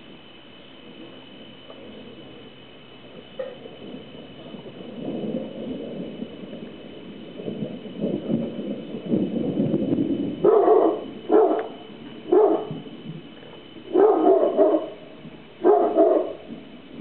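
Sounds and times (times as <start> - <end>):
thunder rumbling: 0.0 - 17.0
dog barking: 3.4 - 3.6, 10.4 - 12.8, 13.9 - 15.0, 15.6 - 16.4.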